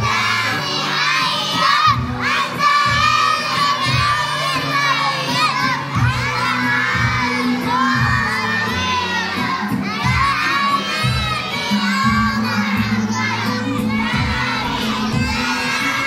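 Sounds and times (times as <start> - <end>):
children singing loudly in unison: 0.0 - 16.0.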